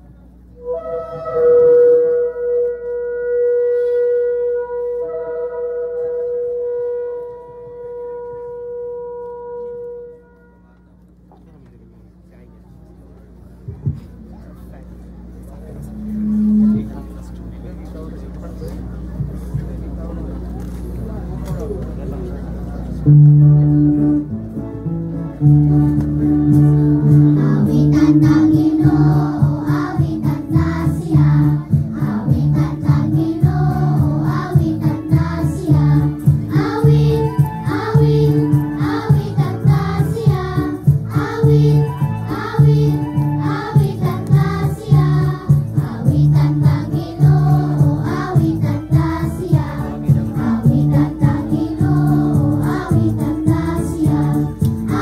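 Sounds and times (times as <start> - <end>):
instrumental accompaniment: 0.5 - 11.2, 15.4 - 17.5, 23.0 - 55.0
choir singing a hymn: 26.7 - 55.0.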